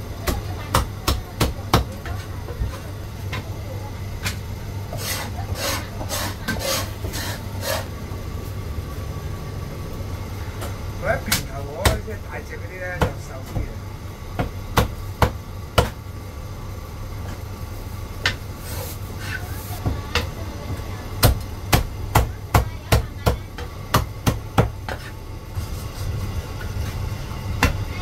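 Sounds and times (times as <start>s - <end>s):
cleaver chopping on wooden block: 14.4s - 16.0s.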